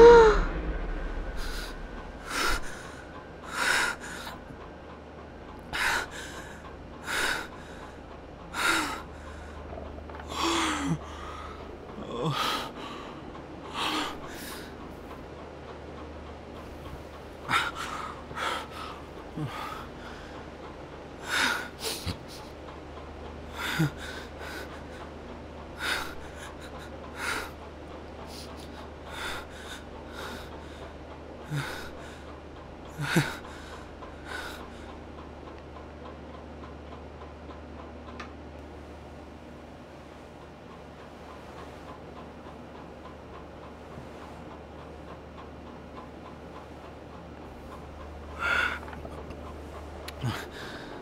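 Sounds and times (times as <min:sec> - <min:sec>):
man gasping breaths: 0:28.2 - 0:32.3, 0:33.0 - 0:34.9, 0:50.0 - 0:51.0.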